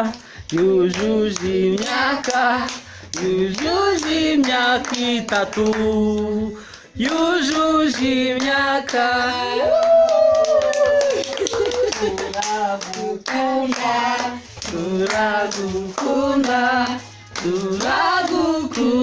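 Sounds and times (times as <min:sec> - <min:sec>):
hands clapping: 0:00.0 - 0:19.0
women singing unaccompanied: 0:01.0 - 0:09.8, 0:13.0 - 0:19.0.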